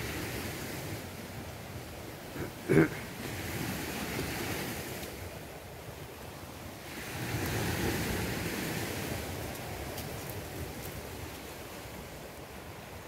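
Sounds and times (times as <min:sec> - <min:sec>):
wind noise on microphone: 0:03.2 - 0:13.0.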